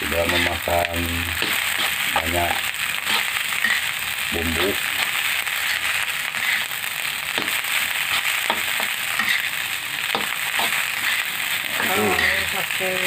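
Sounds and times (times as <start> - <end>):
rice sizzling in a pan: 0.0 - 13.0
metal spoon scraping pan: 1.4 - 2.1, 3.0 - 3.9, 7.4 - 9.6.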